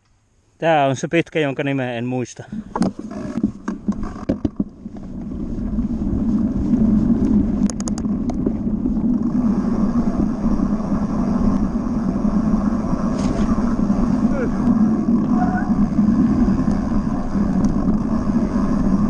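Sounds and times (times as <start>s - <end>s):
wind on microphone: 2.4s - 19.0s
bicycle rattle: 2.5s - 19.0s
bicycle clicks and knocks: 2.7s - 5.3s, 7.2s - 9.3s
tyres rushing on grass and dirt: 4.6s - 19.0s.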